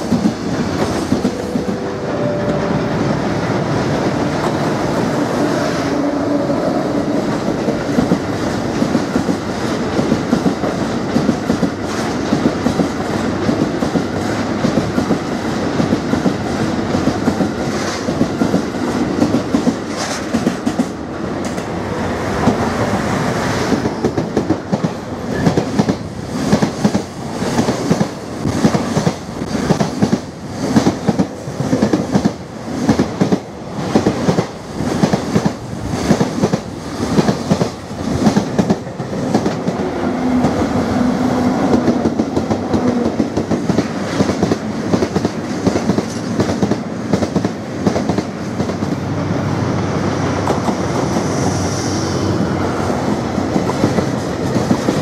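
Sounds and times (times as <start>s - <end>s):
freight train rumbling: 0.0s - 55.0s.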